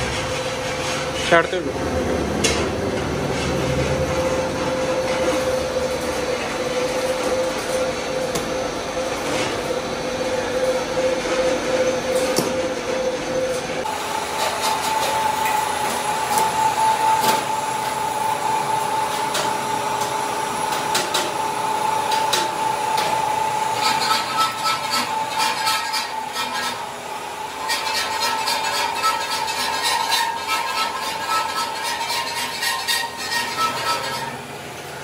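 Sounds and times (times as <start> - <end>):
steady machine whine: 0.0 - 35.0
machine cutting metal: 13.4 - 35.0.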